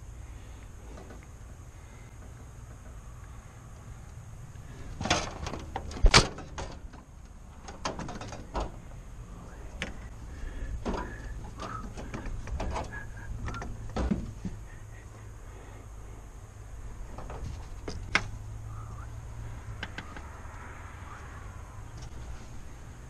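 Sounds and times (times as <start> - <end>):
knocks and clanks of gear: 4.8 - 8.9, 10.7 - 14.6, 17.1 - 18.4.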